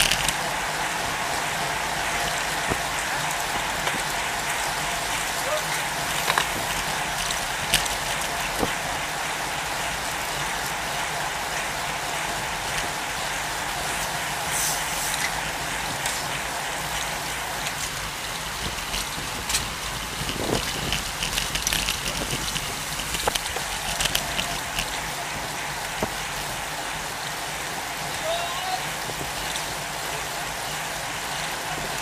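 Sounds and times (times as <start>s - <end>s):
bicycle clicks and ticks: 0.0s - 0.5s, 2.3s - 8.9s, 13.8s - 26.6s
road noise: 0.0s - 32.0s.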